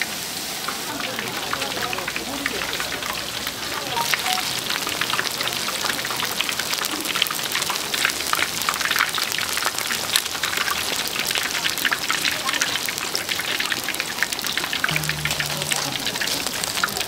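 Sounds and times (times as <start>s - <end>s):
frying oil crackling and popping: 0.0s - 17.0s.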